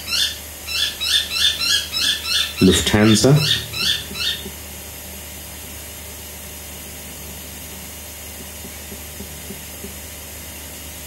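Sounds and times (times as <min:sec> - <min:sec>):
faint low hum: 0:02.6 - 0:04.5.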